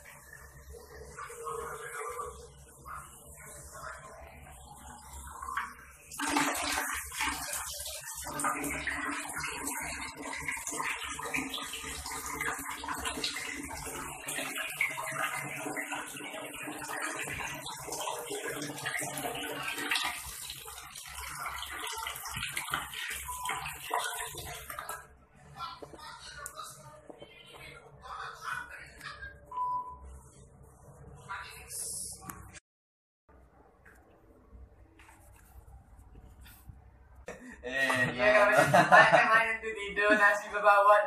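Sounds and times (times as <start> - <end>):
tap water rushing into plastic: 5.6 - 25.0.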